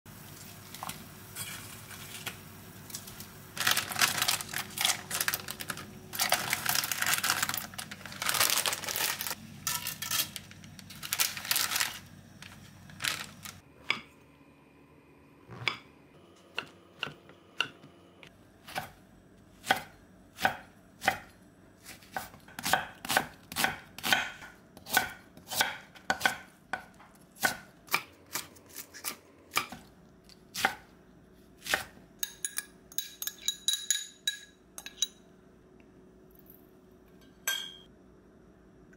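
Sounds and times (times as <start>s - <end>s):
knife chopping on wooden board: 19.6s - 21.3s, 22.0s - 28.5s.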